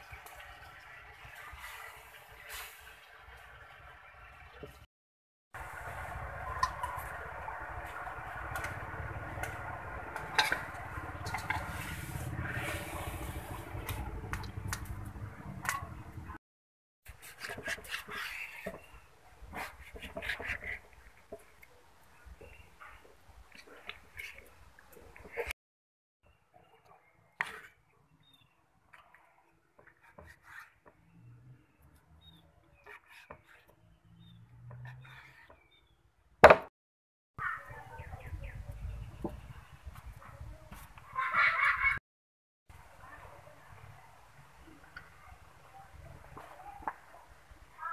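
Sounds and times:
sauce bubbling in a wok: 0.0 - 4.8.

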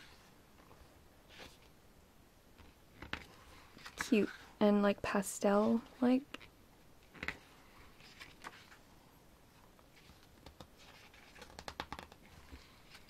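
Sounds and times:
paper pages rustling: 7.1 - 8.8, 9.6 - 13.0.

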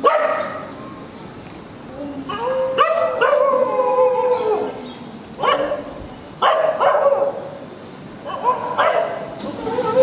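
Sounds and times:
dog howling barks: 2.3 - 4.8, 5.4 - 7.4, 8.3 - 10.0.

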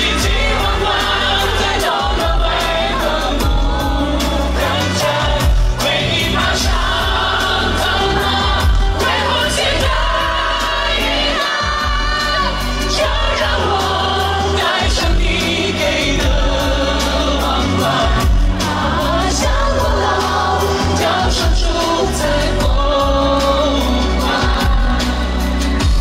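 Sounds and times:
backing track with heavy bass: 0.0 - 26.0
man singing into a microphone: 20.8 - 25.3.

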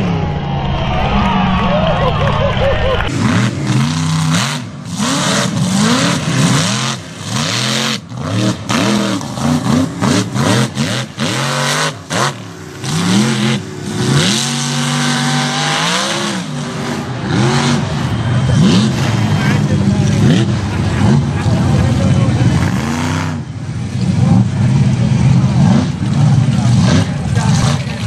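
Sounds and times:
truck engine revving hard: 1.2 - 28.0.

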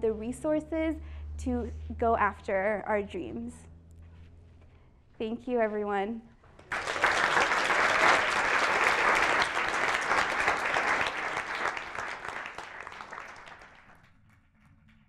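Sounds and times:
audience applauding: 6.6 - 14.2.

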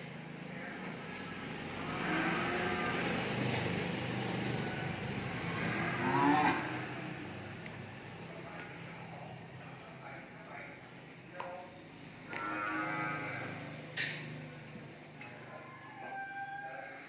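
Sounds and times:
cattle mooing: 1.2 - 3.5, 4.6 - 7.0, 12.3 - 13.8.

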